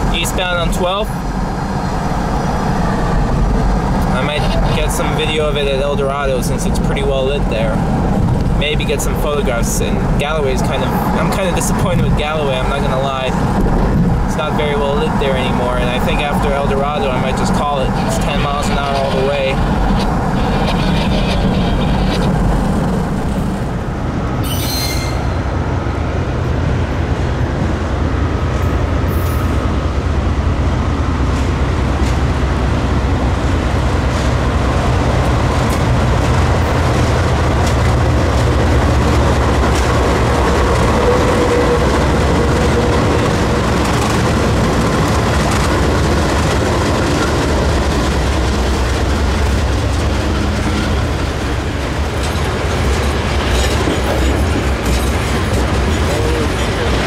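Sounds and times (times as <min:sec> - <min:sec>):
diesel locomotive rumbling: 0:00.0 - 0:57.0
train wheels on rail: 0:00.0 - 0:57.0
train wheel squeal: 0:24.4 - 0:25.4.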